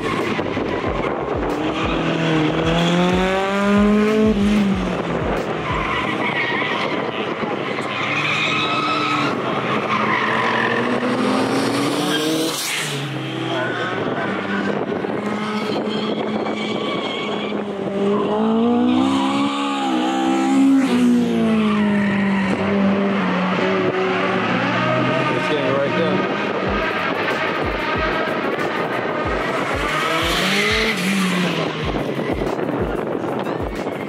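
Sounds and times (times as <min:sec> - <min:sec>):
car engine revving: 0:00.0 - 0:34.0
tyres squealing and skidding: 0:00.0 - 0:34.0.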